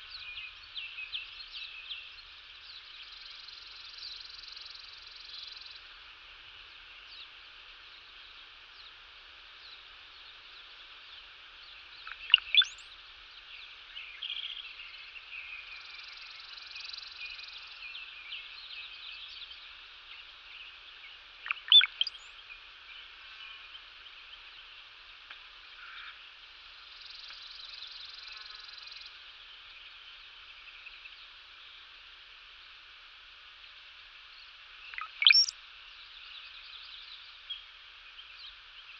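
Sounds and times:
chorus of small animal calls: 0:12.0 - 0:12.8, 0:21.4 - 0:22.3, 0:34.9 - 0:35.5
sharp sweeping chirps: 0:21.5 - 0:22.2, 0:35.0 - 0:35.5.

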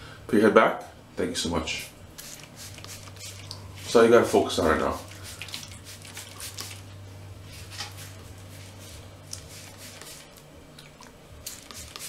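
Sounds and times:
spray bottle spritzing: 0:02.2 - 0:03.6, 0:05.0 - 0:06.8, 0:09.3 - 0:10.4, 0:11.4 - 0:12.0.

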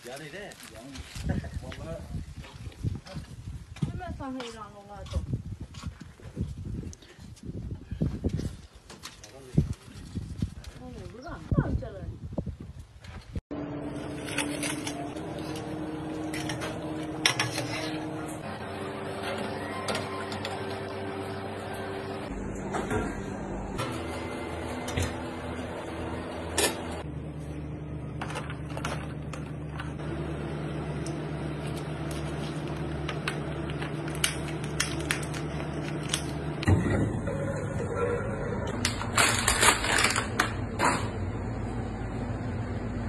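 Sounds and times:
machine hum: 0:13.5 - 0:43.0.

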